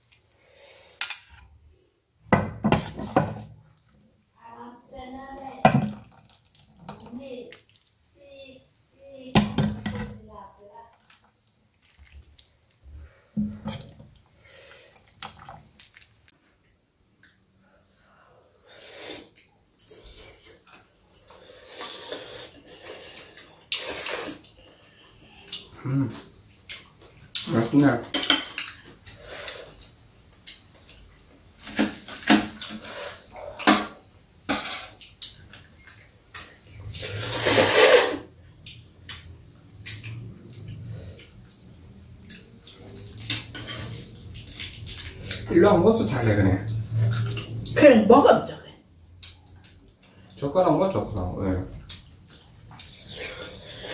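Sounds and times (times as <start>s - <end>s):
stew splashing and dripping: 5.9s - 8.2s, 10.7s - 13.2s, 38.5s - 45.6s
eating and utensil sounds: 9.7s - 16.4s, 18.8s - 48.0s, 51.7s - 53.9s
loud noodle slurp: 21.6s - 22.7s, 23.7s - 24.5s, 36.9s - 38.3s.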